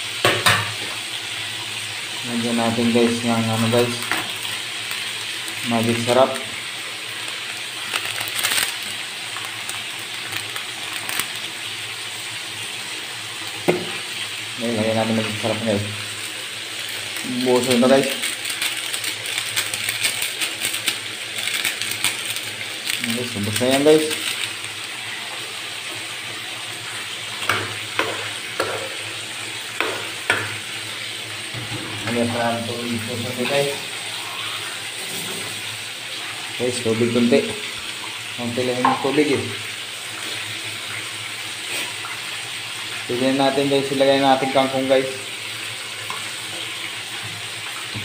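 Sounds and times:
broth boiling in a frying pan: 0:00.0 - 0:48.0
seasoning granules shaken into pan: 0:17.0 - 0:25.0
wooden spatula striking a pan: 0:27.4 - 0:29.0, 0:29.8 - 0:30.6.

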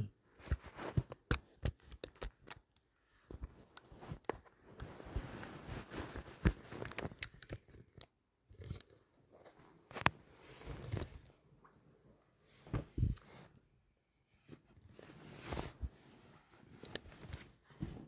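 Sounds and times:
rustling: 0:00.3 - 0:07.8, 0:14.4 - 0:18.0.

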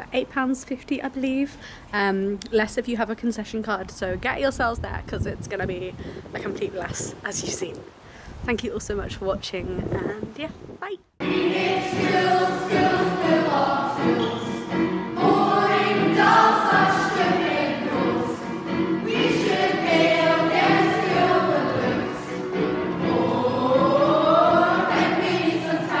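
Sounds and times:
group of voices singing: 0:11.2 - 0:26.0.

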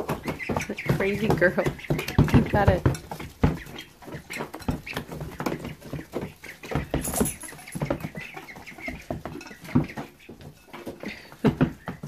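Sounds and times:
ducklings peeping: 0:00.0 - 0:12.0
knocks and rustles in wood shavings: 0:00.0 - 0:12.0.

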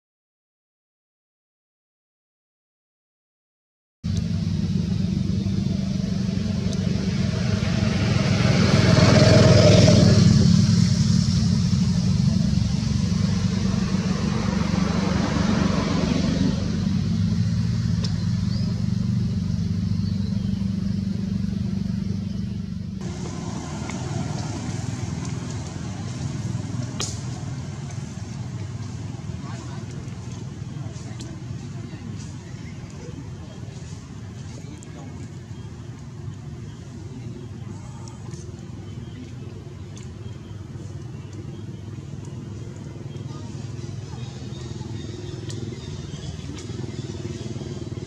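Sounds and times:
vehicle engine rumbling: 0:04.0 - 0:48.0.

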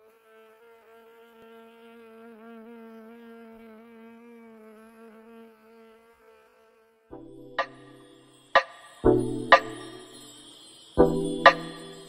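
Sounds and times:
honeybee buzzing in flight: 0:00.0 - 0:08.3.

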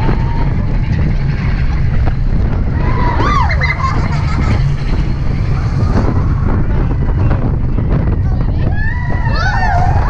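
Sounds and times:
roller coaster cars rumbling: 0:00.0 - 0:10.0
rider whooping: 0:02.7 - 0:07.1.

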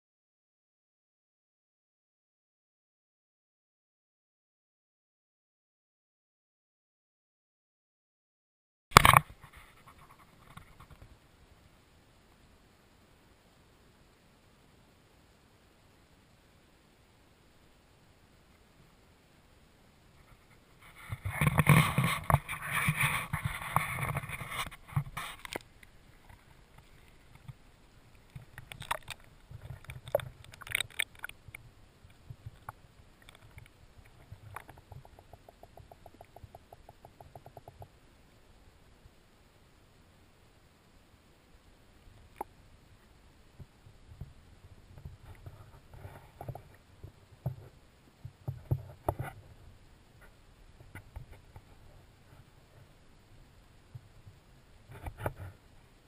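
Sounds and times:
muffled underwater clicks and knocks: 0:08.9 - 0:11.1, 0:20.2 - 0:38.0, 0:43.6 - 0:49.4, 0:53.9 - 0:55.6
open-air noise: 0:08.9 - 0:56.0
underwater clicks and knocks: 0:28.3 - 0:37.9.

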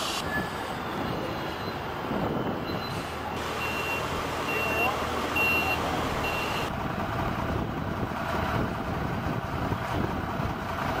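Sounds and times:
engine noise: 0:00.0 - 0:11.0
steady low vehicle noise: 0:00.0 - 0:11.0
forklift warning beeper: 0:02.6 - 0:06.7.

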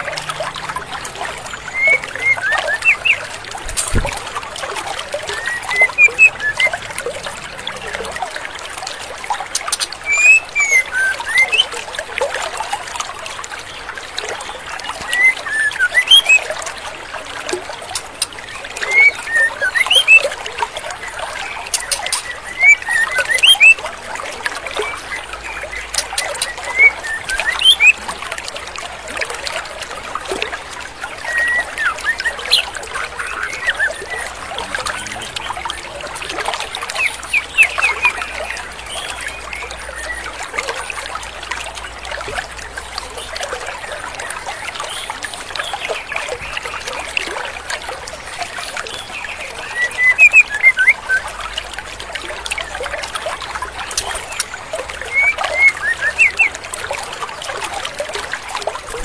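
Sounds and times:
stream water rushing: 0:00.0 - 0:59.0
bird chirping: 0:01.5 - 0:04.0, 0:05.4 - 0:06.8, 0:09.6 - 0:11.7, 0:18.9 - 0:20.3, 0:21.5 - 0:23.8, 0:24.8 - 0:28.0, 0:36.9 - 0:40.2.

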